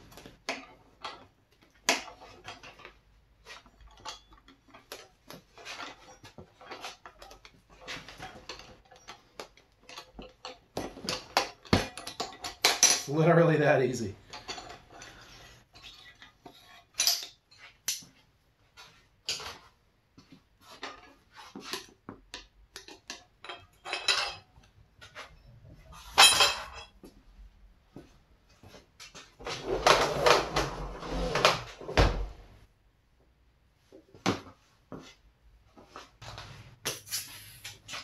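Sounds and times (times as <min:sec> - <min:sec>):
metal tools clinking: 0:03.6 - 0:18.0, 0:22.8 - 0:24.7, 0:26.1 - 0:27.0.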